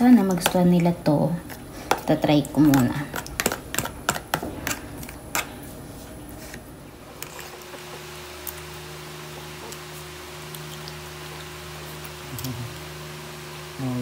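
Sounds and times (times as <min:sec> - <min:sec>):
steady low hum: 0:00.0 - 0:14.0
spoon scraping plastic tub: 0:06.4 - 0:08.0.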